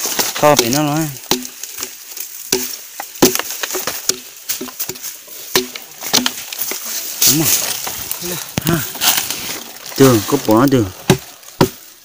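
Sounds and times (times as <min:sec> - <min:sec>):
machete hacking bamboo: 0:00.0 - 0:07.9, 0:11.0 - 0:12.0
bamboo splintering: 0:00.0 - 0:12.0.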